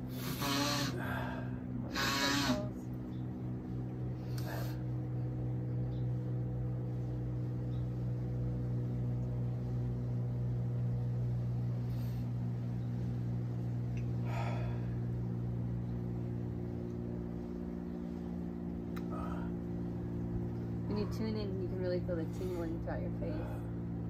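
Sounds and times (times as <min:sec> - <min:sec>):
steady low hum: 0:00.0 - 0:24.0
faint breaths: 0:19.0 - 0:19.7.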